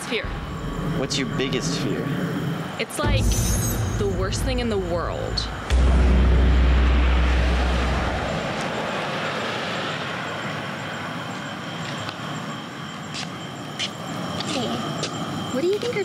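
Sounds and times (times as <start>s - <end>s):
deep rumbling boom: 0.2s - 9.3s.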